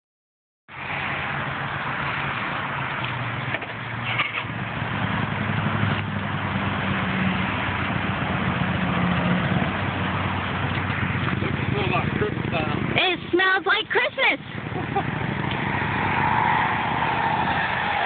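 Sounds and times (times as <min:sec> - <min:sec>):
road noise hiss: 0:00.7 - 0:18.0
vehicle engine idling: 0:01.2 - 0:13.3.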